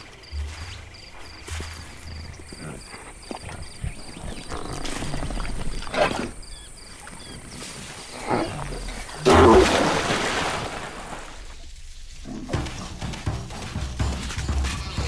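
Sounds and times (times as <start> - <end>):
animal vocal sounds: 0.0 - 9.9
insects chirping: 0.0 - 15.0.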